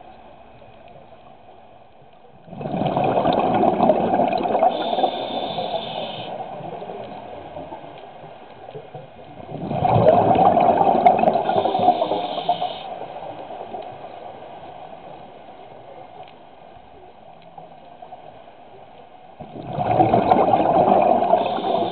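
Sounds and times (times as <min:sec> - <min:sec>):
low hiss: 0:00.0 - 0:21.9
diver's breath bubbling underwater: 0:02.5 - 0:06.2, 0:09.5 - 0:12.6, 0:19.6 - 0:21.9.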